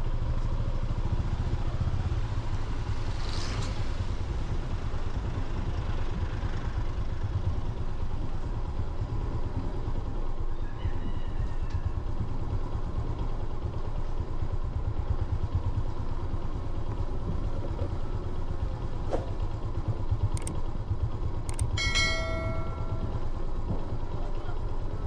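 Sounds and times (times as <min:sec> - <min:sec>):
vehicle rumble: 0:00.0 - 0:25.0
sharp clicks: 0:20.3 - 0:20.6, 0:21.5 - 0:21.8
short pitched tone: 0:21.8 - 0:23.3.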